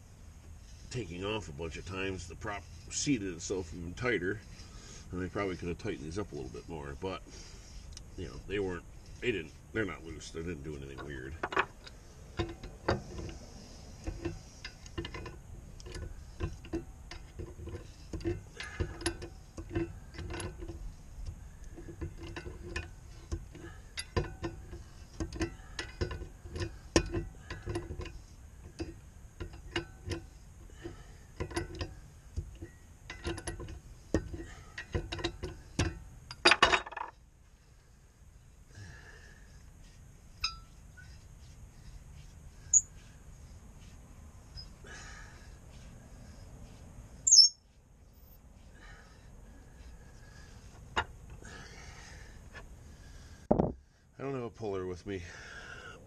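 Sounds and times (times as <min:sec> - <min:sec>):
metal clatter: 0:14.0 - 0:37.2.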